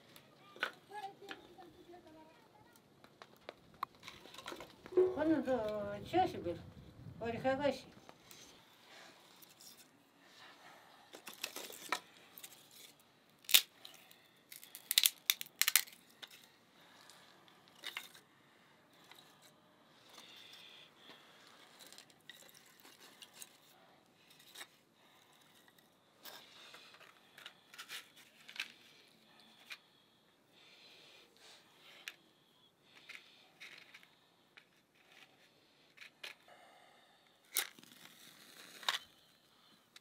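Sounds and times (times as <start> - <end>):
dry kindling cracking and snapping: 11.2 - 16.5.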